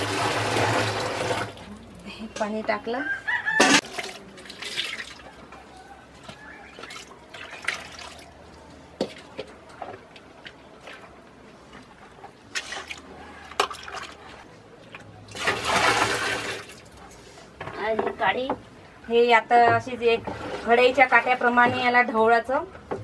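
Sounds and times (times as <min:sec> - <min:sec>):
gush of liquid: 0:00.0 - 0:01.7, 0:15.4 - 0:16.9.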